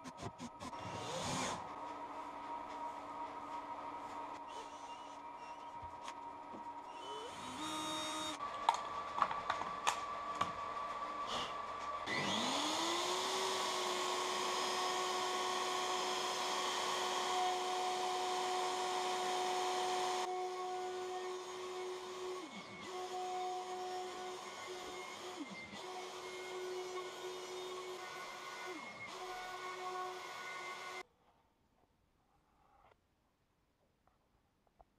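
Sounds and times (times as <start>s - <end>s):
handheld router whining: 0.0s - 2.2s, 4.2s - 31.0s
router cutting plywood: 12.1s - 31.0s.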